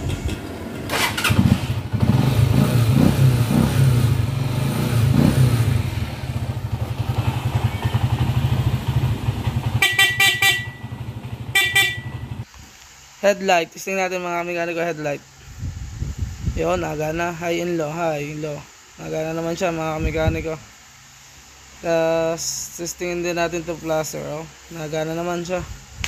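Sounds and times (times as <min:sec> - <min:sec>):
motorcycle engine starting and revving: 0:00.0 - 0:12.5
electric horn beeps: 0:09.7 - 0:12.4.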